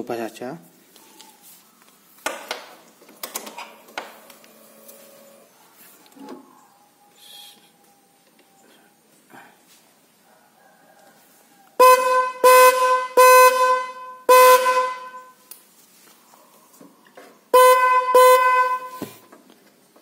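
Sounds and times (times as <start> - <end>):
motorcycle horn honking: 11.8 - 15.4, 17.5 - 19.2.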